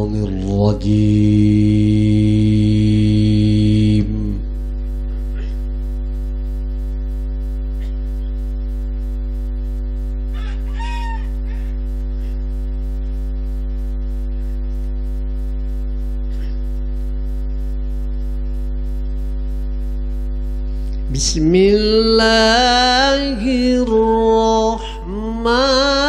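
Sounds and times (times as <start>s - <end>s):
electrical mains hum: 0.0s - 26.0s
chicken call: 10.3s - 11.8s.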